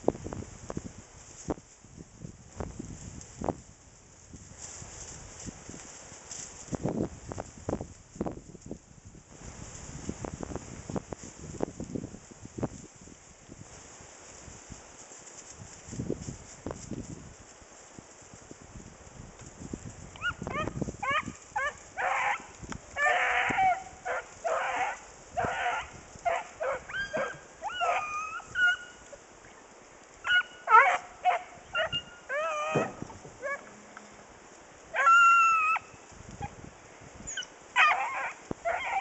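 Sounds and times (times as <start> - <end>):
hounds baying and barking: 20.2 - 29.6, 30.2 - 33.9, 34.9 - 35.9, 37.3 - 39.0.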